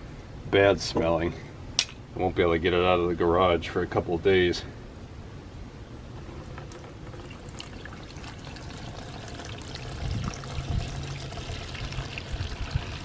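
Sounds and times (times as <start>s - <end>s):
gasoline pouring into bucket: 6.2s - 13.0s.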